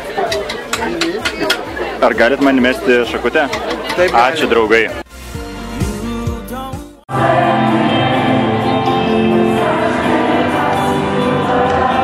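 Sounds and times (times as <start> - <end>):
background music: 0.0 - 12.0
loud live concert music: 5.1 - 12.0
group of voices singing: 5.8 - 12.0.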